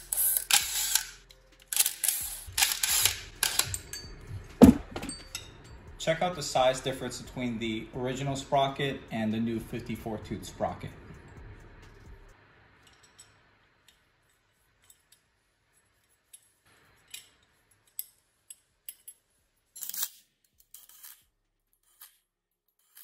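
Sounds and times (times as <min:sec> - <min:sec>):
metallic clicks of bolts: 0:00.0 - 0:05.5, 0:16.2 - 0:21.2.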